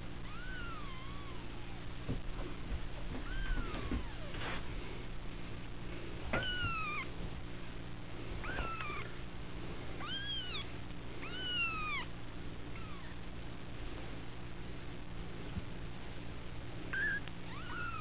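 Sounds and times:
kittens mewing: 0.0s - 2.1s, 3.1s - 4.8s, 6.3s - 7.2s, 8.4s - 9.2s, 10.0s - 13.3s, 16.9s - 18.0s.

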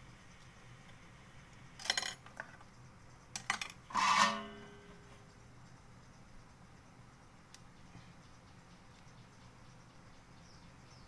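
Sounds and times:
small metal tools clinking: 1.8s - 2.6s, 3.3s - 5.0s.

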